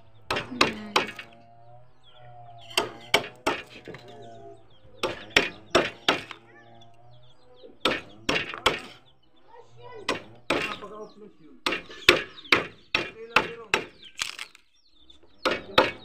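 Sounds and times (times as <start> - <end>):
hammer striking a wood chisel: 0.3 - 1.4, 2.7 - 3.8, 5.0 - 6.4, 7.8 - 9.0, 10.1 - 10.8, 11.6 - 14.1, 15.4 - 16.0.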